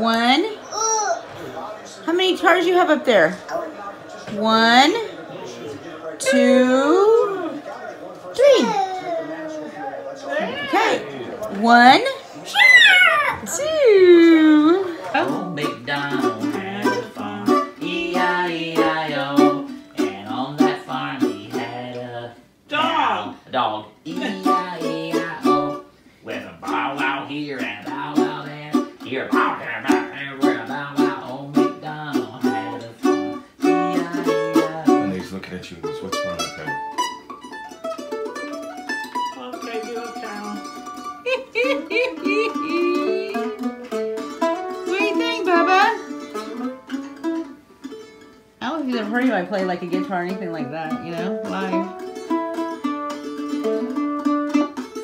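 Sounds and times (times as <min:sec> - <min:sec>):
mandolin playing: 0:00.0 - 0:07.6, 0:13.4 - 0:23.2, 0:24.1 - 0:55.0
man singing: 0:15.0 - 0:22.4, 0:24.0 - 0:25.8, 0:26.6 - 0:35.4.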